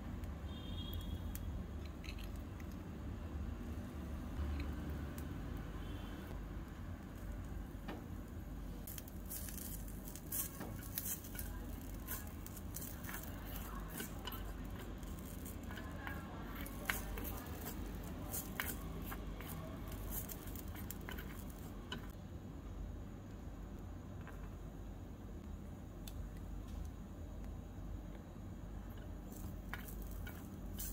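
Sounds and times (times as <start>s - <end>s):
low steady hum: 0.0s - 30.9s
metal spoon scraping frying pan: 9.3s - 22.2s.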